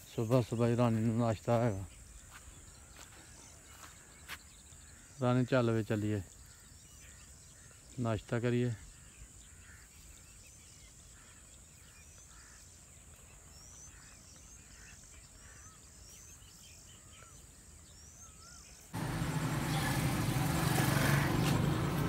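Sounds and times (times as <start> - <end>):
small birds chirping: 0.0 - 22.0
loud noisy rumble: 19.0 - 22.0.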